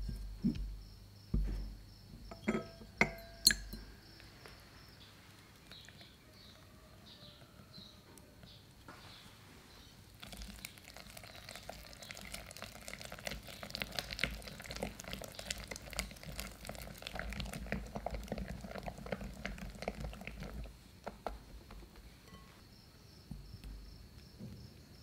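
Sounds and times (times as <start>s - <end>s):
whisk wires clicking on glass: 2.3s - 3.9s.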